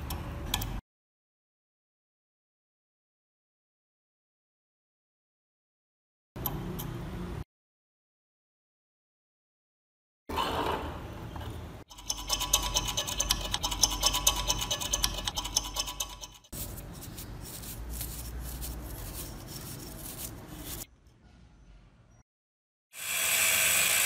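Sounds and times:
steel scraper scratching rust: 0:11.9 - 0:20.9
stiff brush sweeping: 0:16.5 - 0:20.9.

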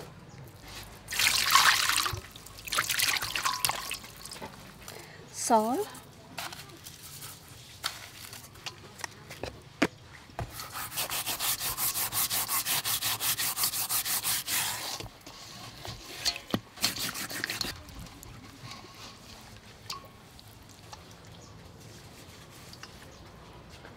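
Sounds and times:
salt scraping on fish skin: 0:10.5 - 0:17.8.

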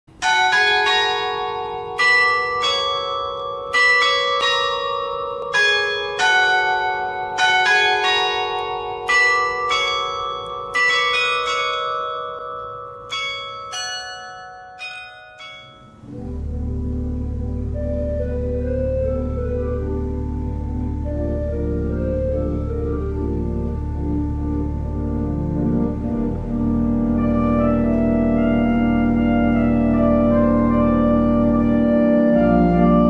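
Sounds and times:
church bells ringing: 0:00.1 - 0:33.0
pipe organ low held notes: 0:15.5 - 0:33.0.

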